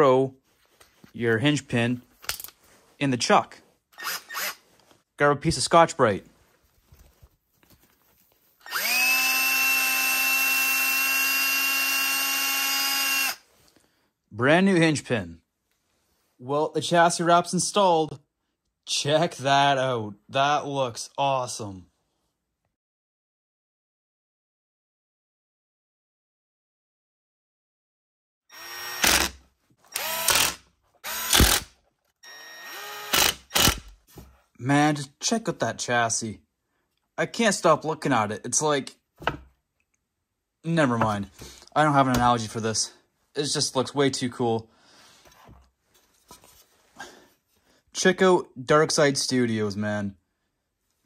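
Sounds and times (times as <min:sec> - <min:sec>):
electric drill spinning: 0:04.0 - 0:04.6, 0:08.6 - 0:13.4, 0:28.5 - 0:34.0.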